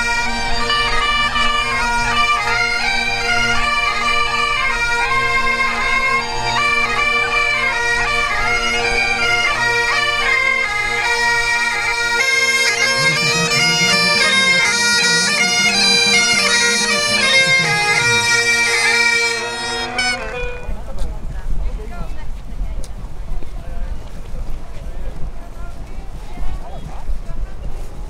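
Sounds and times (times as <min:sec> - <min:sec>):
bagpipe drones: 0:00.0 - 0:21.0
bagpipe melody: 0:00.0 - 0:21.0.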